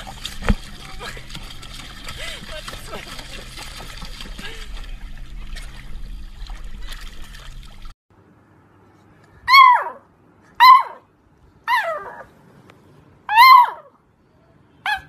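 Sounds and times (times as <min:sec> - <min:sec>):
water splashing around swimming dog: 0:00.0 - 0:08.0
puppy yipping barks: 0:09.5 - 0:11.1, 0:13.3 - 0:14.0.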